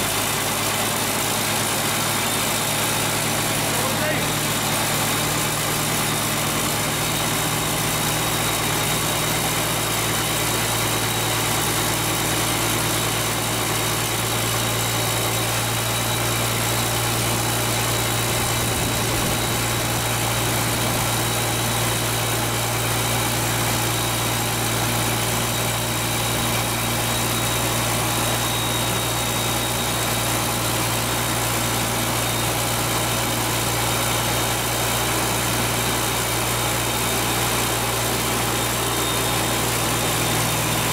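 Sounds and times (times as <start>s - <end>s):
diesel tractor engine idling: 0.0s - 40.9s
turbo whistle: 14.3s - 32.7s, 37.1s - 40.9s.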